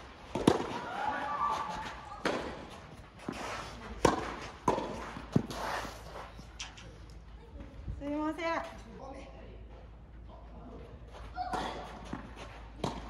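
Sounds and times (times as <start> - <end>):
tennis ball struck by rackets: 0.2 - 6.8, 11.5 - 13.0.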